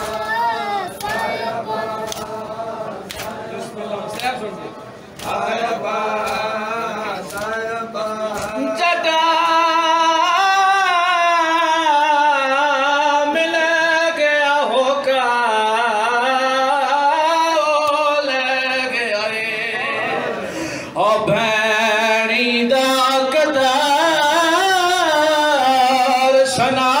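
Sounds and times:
sharp slaps: 0:02.0 - 0:02.4, 0:03.0 - 0:03.4, 0:06.2 - 0:06.5, 0:07.2 - 0:07.6
man singing a lament: 0:05.2 - 0:27.0.

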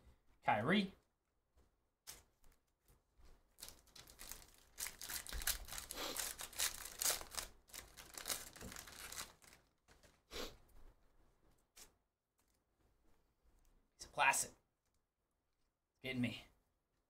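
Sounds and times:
card pack wrappers crinkling: 0:03.5 - 0:10.3.

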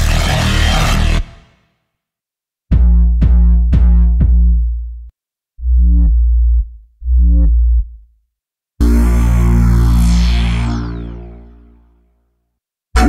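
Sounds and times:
fuller synth bass sound: 0:00.0 - 0:01.5, 0:02.7 - 0:08.2, 0:08.8 - 0:12.2
deep sub bass with kick drum: 0:02.7 - 0:08.0
short synth bass notes: 0:08.8 - 0:12.0.

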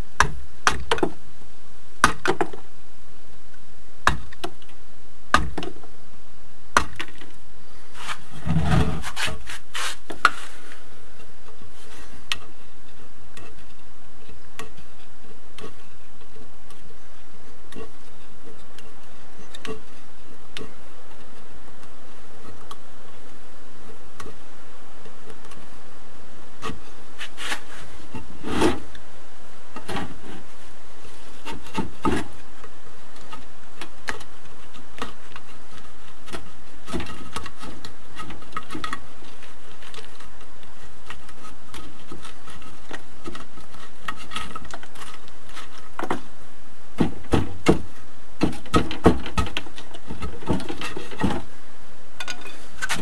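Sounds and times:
concrete chipping and knocking: 0:02.0 - 0:02.6, 0:47.0 - 0:51.4
metal tool scraping concrete block: 0:08.0 - 0:10.5.

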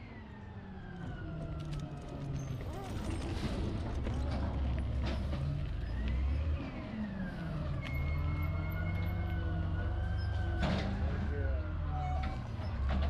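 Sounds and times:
truck engine rumbling: 0:00.0 - 0:13.0
siren wailing: 0:05.8 - 0:13.0.

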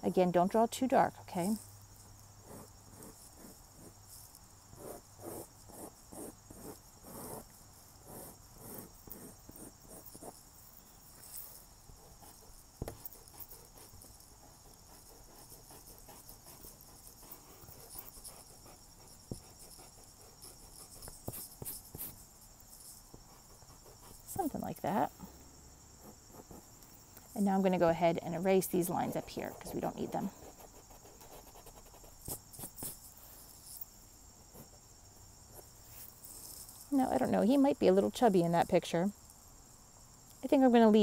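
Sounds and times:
faint high-pitched hiss: 0:00.0 - 0:41.0
pencil scratching on paper: 0:02.4 - 0:04.0, 0:04.8 - 0:10.4, 0:12.0 - 0:22.2, 0:23.2 - 0:24.6, 0:26.0 - 0:26.7, 0:28.9 - 0:33.1.

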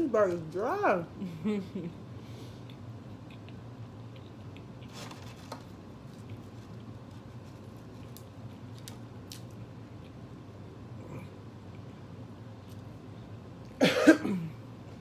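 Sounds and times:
steady low hum: 0:00.0 - 0:15.0
person chewing food: 0:02.6 - 0:10.3, 0:11.0 - 0:13.8.

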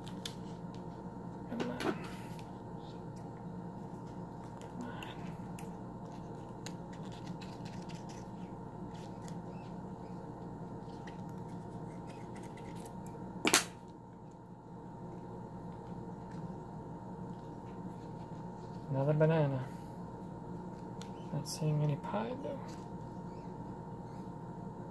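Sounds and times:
steady low hum: 0:00.0 - 0:24.9
hands cutting open eggs: 0:04.1 - 0:09.8.

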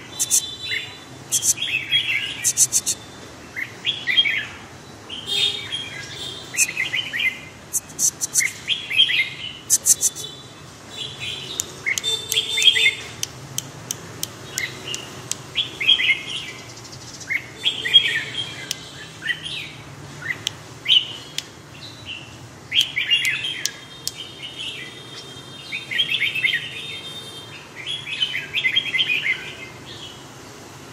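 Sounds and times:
bird singing warbling phrases: 0:00.0 - 0:13.2, 0:14.4 - 0:27.0
sharp clicks: 0:00.2 - 0:00.4, 0:02.4 - 0:03.0, 0:07.7 - 0:08.6, 0:09.7 - 0:10.2, 0:11.5 - 0:15.5, 0:20.4 - 0:20.6, 0:22.8 - 0:24.2.

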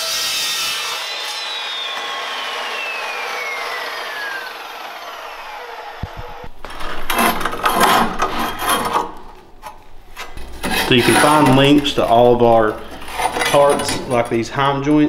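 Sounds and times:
saw blade whine spinning down: 0:00.0 - 0:06.5
deburring tool scraping steel: 0:03.8 - 0:14.4.

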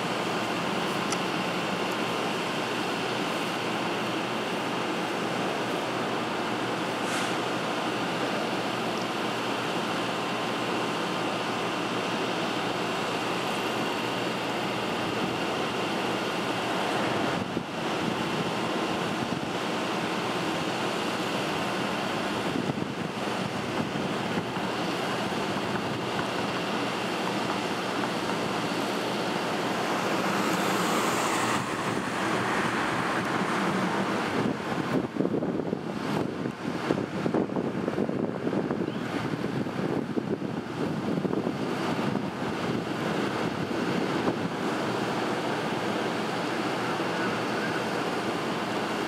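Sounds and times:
diesel locomotive running: 0:00.0 - 0:49.0
wind on microphone: 0:31.3 - 0:44.7.

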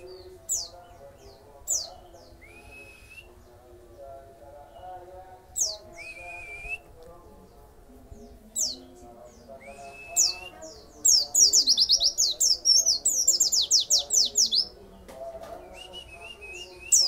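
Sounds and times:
bird singing: 0:00.0 - 0:17.0.

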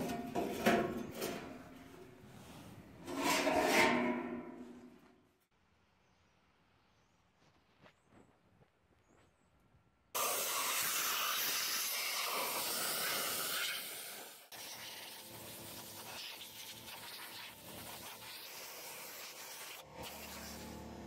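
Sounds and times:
compressed-air blow gun hissing: 0:10.2 - 0:20.8.

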